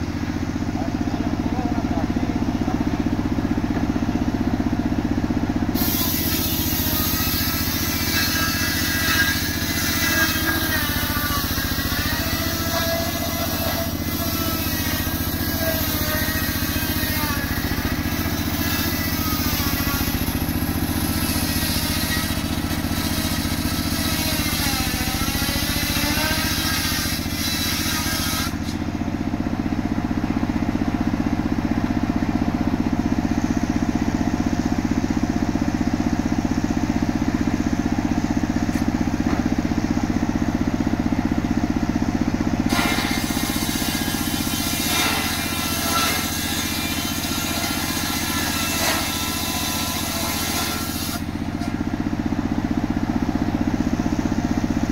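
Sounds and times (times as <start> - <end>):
engine running steadily: 0.0 - 54.9
circular saw blade cutting log: 5.7 - 29.1, 42.6 - 52.1.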